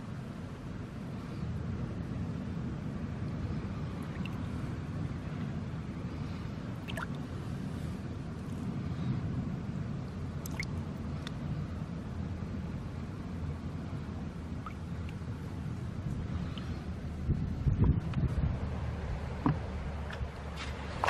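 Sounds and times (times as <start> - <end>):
steady low rumble: 0.0 - 21.0
water drips and splashes: 4.0 - 4.4, 6.8 - 7.2, 10.4 - 11.4, 14.6 - 15.2
shallow water sloshing: 6.2 - 7.9.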